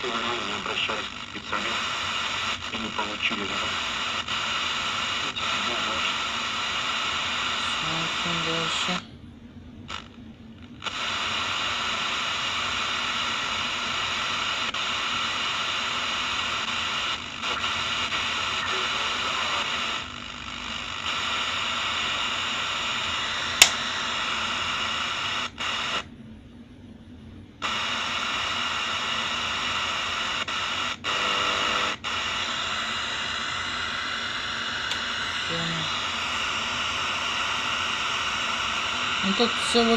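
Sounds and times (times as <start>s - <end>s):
radio static hissing: 0.0s - 9.1s, 9.8s - 26.1s, 27.6s - 39.9s
sharp click: 23.6s - 23.8s.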